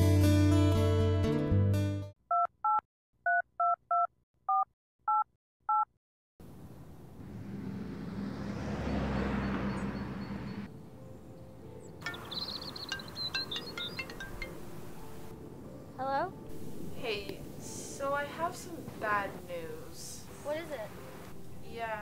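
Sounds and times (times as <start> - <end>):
steady rushing noise: 16.4 - 21.3.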